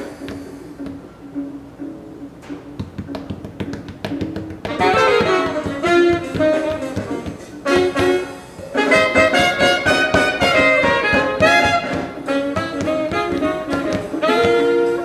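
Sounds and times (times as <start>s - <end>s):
sharp drum taps: 2.8s - 7.4s, 8.9s - 14.6s
saxophone playing: 4.7s - 15.0s.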